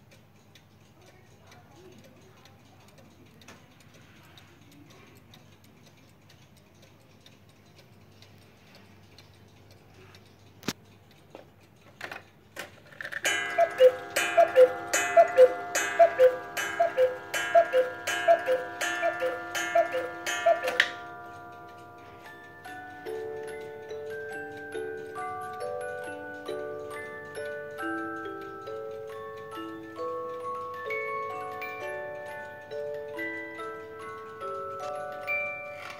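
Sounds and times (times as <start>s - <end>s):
clock ticking: 0.0s - 35.9s
striking mechanism clicks: 4.6s - 35.9s
cuckoo clock calls: 13.1s - 35.9s.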